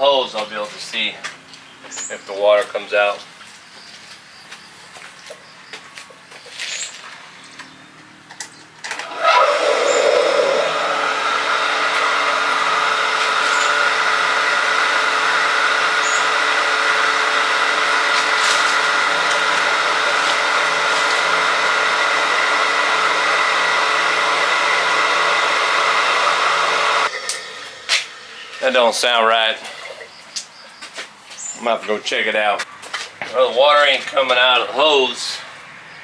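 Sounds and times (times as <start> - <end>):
pump motor whining: 7.9 - 30.6.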